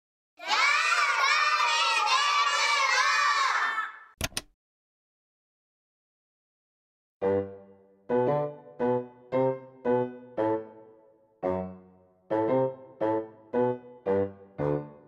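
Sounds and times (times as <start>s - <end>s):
children shouting: 0.4s - 4.2s.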